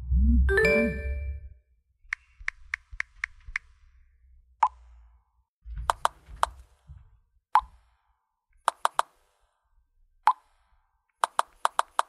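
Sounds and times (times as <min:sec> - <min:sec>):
phone chime tone: 0:00.5 - 0:01.5.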